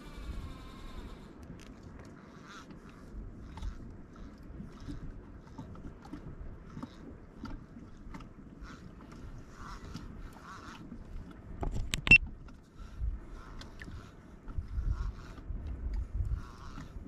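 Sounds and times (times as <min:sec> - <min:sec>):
water lapping against hull: 0:00.0 - 0:17.0
small clicks and knocks: 0:11.6 - 0:12.6.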